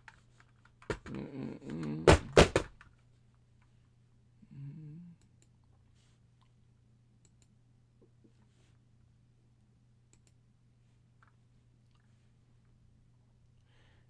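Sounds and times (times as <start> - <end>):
low electrical hum: 0.0 - 14.0
man murmuring: 1.0 - 2.4, 4.4 - 5.2.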